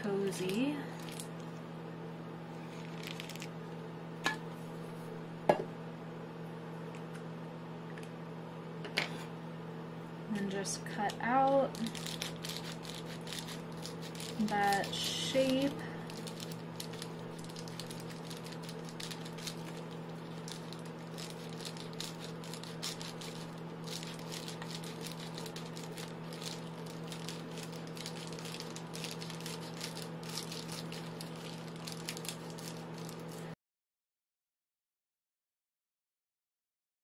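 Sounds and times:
steady low hum: 0.0s - 33.6s
scissors snipping foil insulation: 11.2s - 33.4s.

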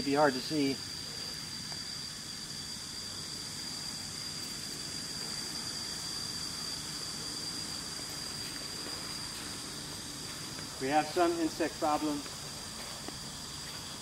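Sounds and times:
constant high-pitched whine: 0.0s - 14.0s
even hiss: 0.0s - 14.0s.

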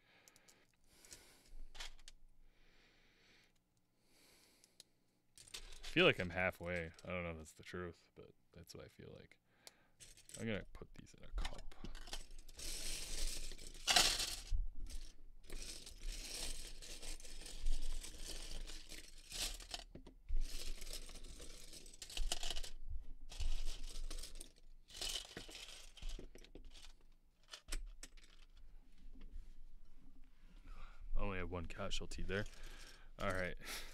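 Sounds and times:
plastic bricks clattering and scraping: 5.4s - 7.0s, 11.4s - 28.6s.

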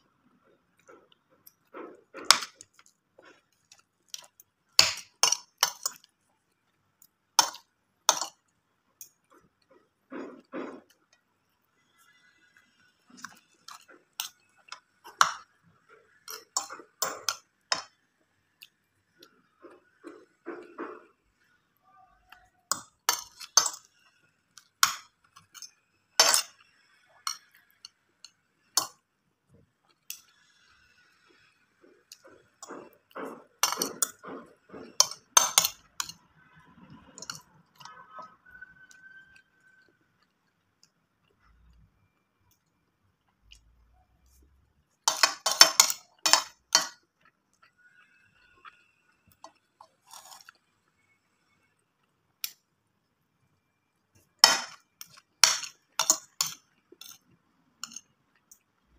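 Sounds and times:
soft chewing: 0.0s - 25.9s, 26.5s - 58.9s
cutlery clinking on a plate: 24.8s - 26.6s, 32.6s - 36.2s, 45.0s - 47.0s, 54.4s - 57.2s, 57.8s - 58.1s.

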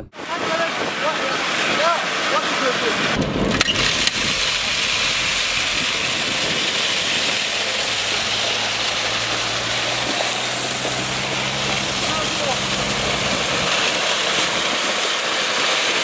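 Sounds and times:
gravel pouring: 0.3s - 16.0s
truck engine hum: 3.2s - 15.6s.

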